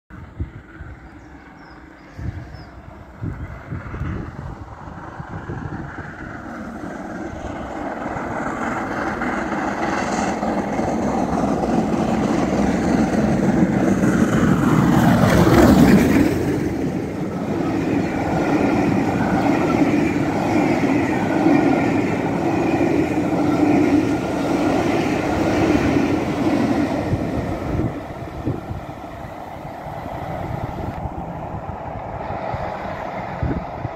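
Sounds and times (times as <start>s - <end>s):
steam locomotive passing: 0.1s - 33.9s.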